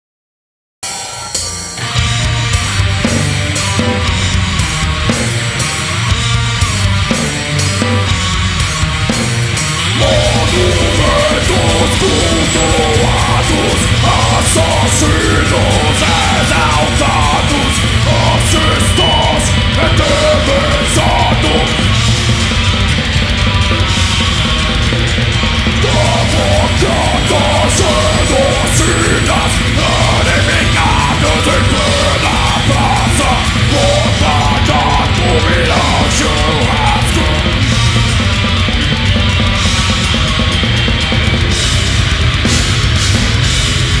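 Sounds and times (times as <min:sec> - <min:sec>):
heavy metal band playing: 0:00.8 - 0:44.0.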